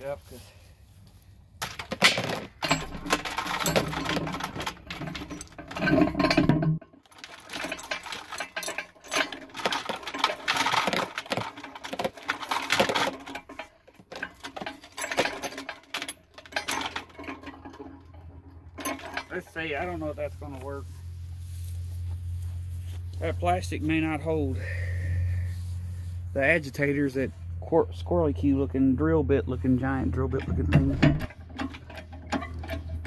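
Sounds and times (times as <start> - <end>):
metal chain clinking and rattling: 1.0 - 24.2, 30.3 - 33.0.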